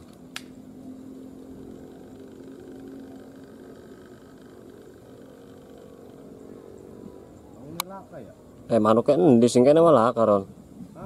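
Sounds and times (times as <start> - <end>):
faint low engine hum: 0.0 - 11.0.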